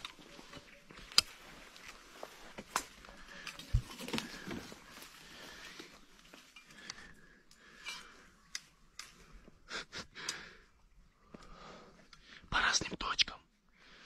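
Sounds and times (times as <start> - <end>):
rustles and scuffs: 0.1 - 6.5
quiet breathing: 0.3 - 14.0.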